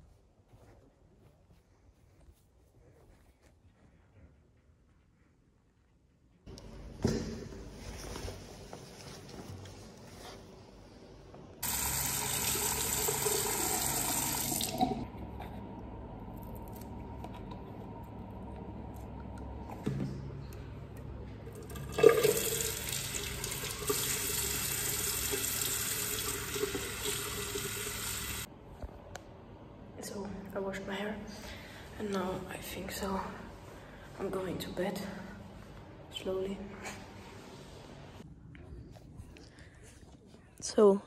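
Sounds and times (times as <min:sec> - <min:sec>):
tap water running into basin: 0:11.6 - 0:15.0, 0:21.6 - 0:28.5.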